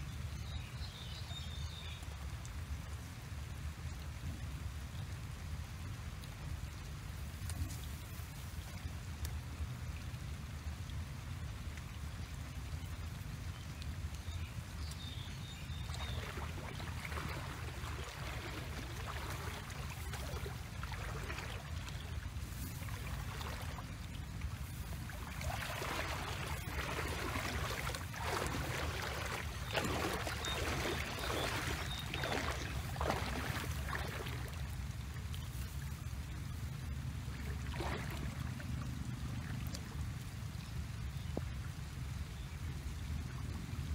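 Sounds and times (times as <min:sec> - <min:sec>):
hands splashing in muddy water: 0:15.7 - 0:34.7
steady low rumble: 0:15.8 - 0:41.0.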